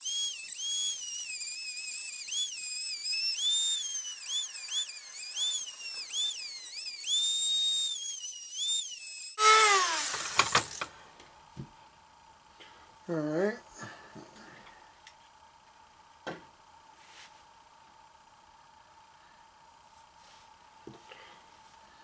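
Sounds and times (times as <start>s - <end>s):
rotary tool grinding metal: 0.0s - 10.9s.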